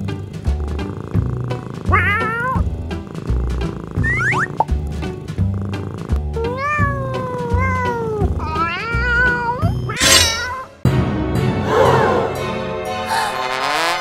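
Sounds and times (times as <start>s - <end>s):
cat meowing: 1.9s - 2.6s, 6.4s - 10.7s.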